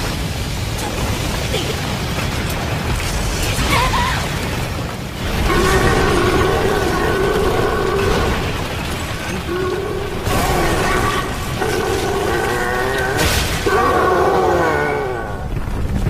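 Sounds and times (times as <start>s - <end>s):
heavy crashing impacts: 0.0s - 14.5s
creature screaming: 5.3s - 8.5s, 9.4s - 15.5s.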